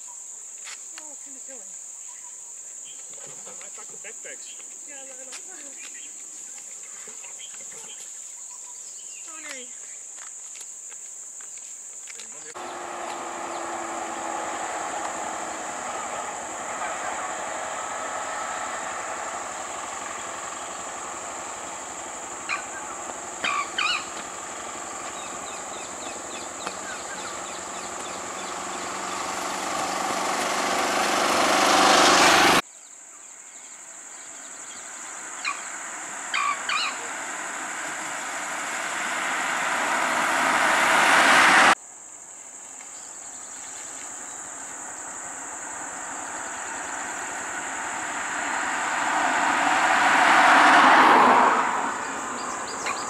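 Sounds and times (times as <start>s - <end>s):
insect chirps: 0.0s - 53.0s
insects droning: 0.0s - 53.0s
vehicle rushing past: 12.5s - 32.6s, 34.2s - 41.8s, 44.1s - 53.0s.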